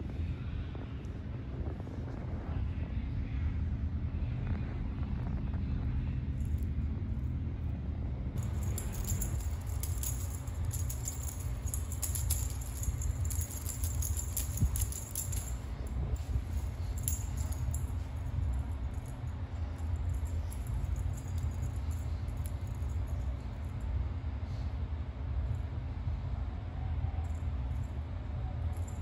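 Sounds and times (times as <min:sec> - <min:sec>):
steady low hum: 0:00.0 - 0:29.0
metallic jingling and clicking toy: 0:08.4 - 0:23.4.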